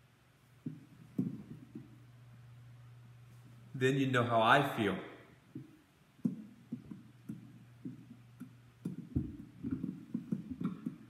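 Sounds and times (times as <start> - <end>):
steady low hum: 0.0 - 11.0
microphone handling knocks and rubs: 0.6 - 1.9, 8.8 - 11.0.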